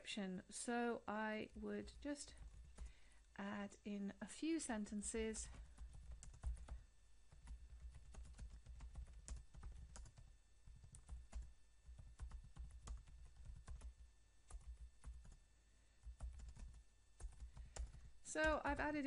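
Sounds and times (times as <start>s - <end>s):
computer keyboard typing: 1.8s - 3.0s, 5.0s - 15.4s, 16.0s - 19.0s.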